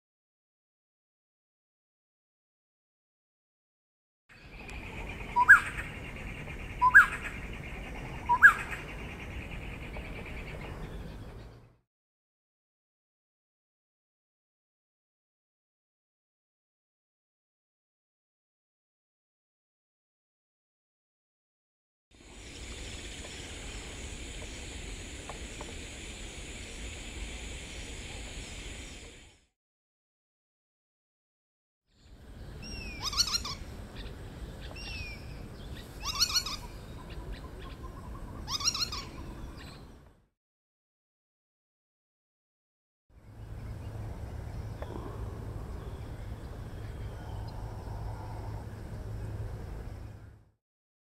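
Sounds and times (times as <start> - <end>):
bird whistled calls: 5.3 - 5.9, 6.8 - 7.3, 8.3 - 8.8, 32.6 - 33.6, 36.0 - 36.8, 37.6 - 39.9
low rumble: 43.2 - 50.5.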